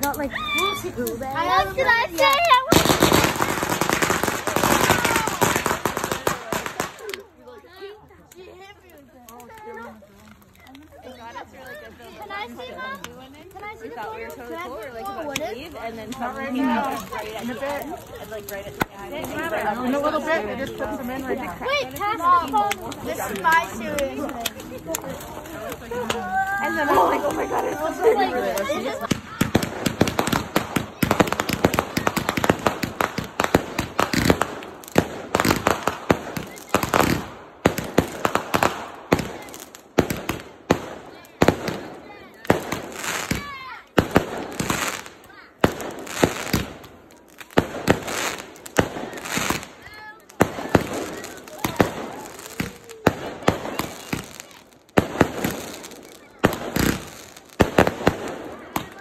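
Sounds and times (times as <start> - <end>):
fireworks bangs and crackling: 0.0 - 59.0.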